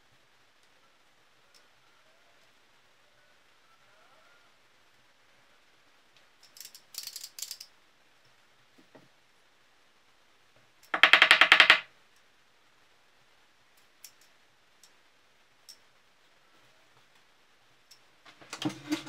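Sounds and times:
wooden baby rattle shaken: 11.0s - 11.8s.

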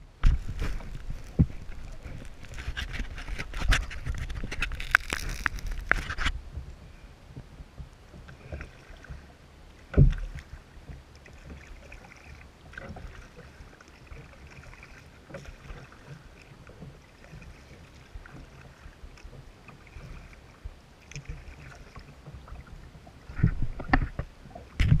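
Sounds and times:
paddle splashes: 0.0s - 25.0s
water lapping at hull: 0.0s - 25.0s
louder thumps: 0.2s - 2.2s, 9.9s - 10.4s.

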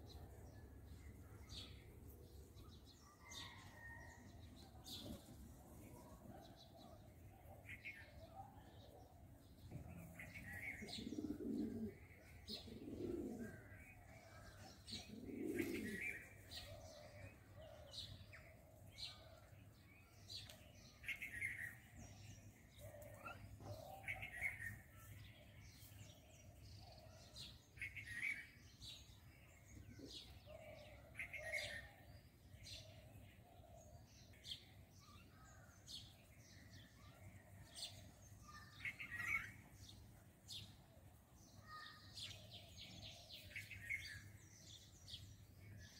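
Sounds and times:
faint high bird chirps: 2.6s - 32.9s, 33.9s - 45.8s
pigeon cooing: 9.9s - 17.9s.

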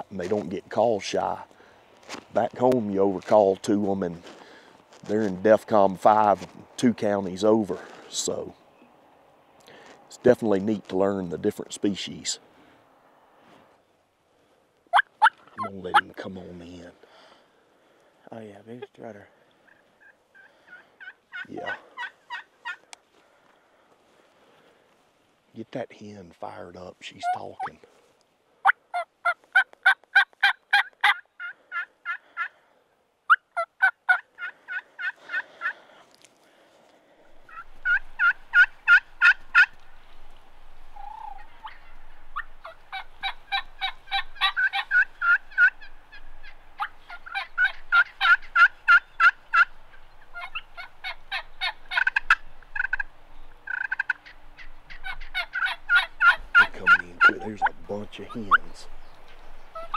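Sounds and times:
turkey hen yelping: 14.9s - 16.1s, 19.6s - 22.8s, 28.6s - 32.6s, 33.3s - 35.8s, 37.3s - 40.0s, 40.9s - 58.8s, 59.4s - 59.9s.

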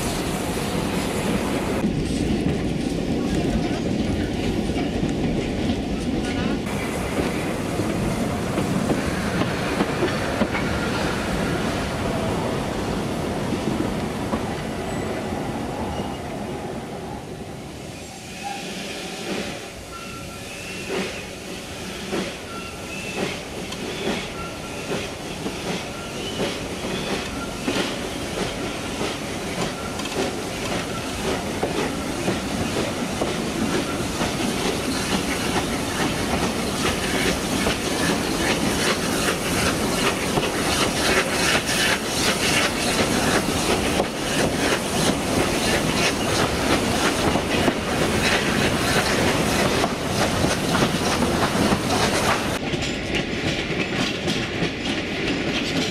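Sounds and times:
steam locomotive working: 0.0s - 17.2s, 18.0s - 55.9s
train wheels clicking over rail joints: 22.0s - 55.9s.

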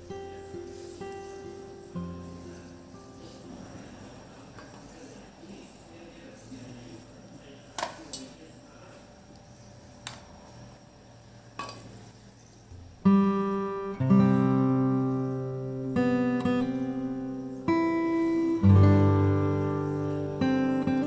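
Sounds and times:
strummed acoustic guitar: 0.0s - 4.1s, 12.7s - 21.0s.

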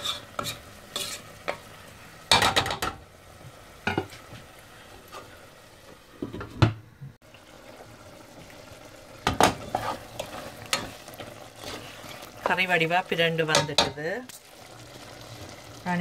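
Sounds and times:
utensil and lid scraping a pot: 0.0s - 1.3s, 9.5s - 10.9s, 11.5s - 12.2s
curry sizzling faintly: 0.0s - 6.6s, 7.2s - 16.0s.

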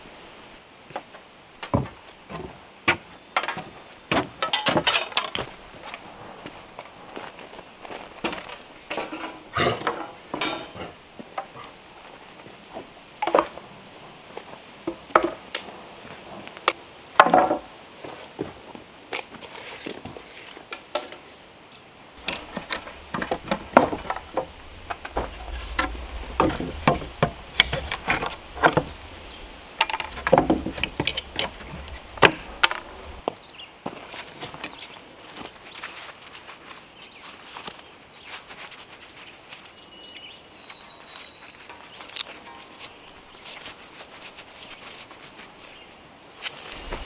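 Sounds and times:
wooden boards knocked: 29.8s - 33.2s.

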